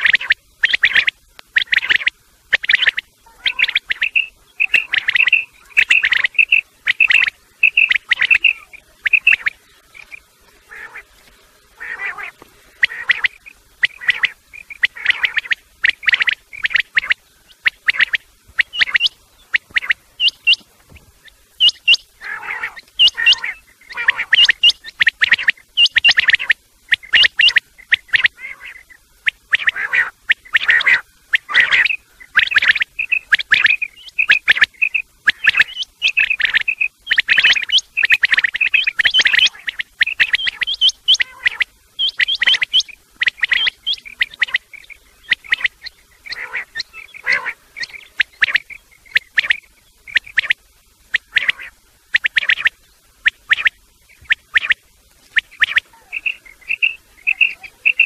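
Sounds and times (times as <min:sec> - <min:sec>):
quail calling: 0:00.0 - 0:58.0.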